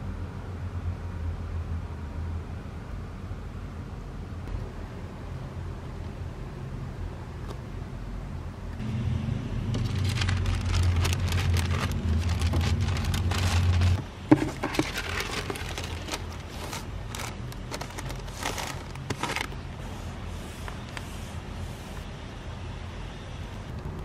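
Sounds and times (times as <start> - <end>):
low hum: 0.0 - 19.6
wrapping paper rustling: 9.7 - 19.6.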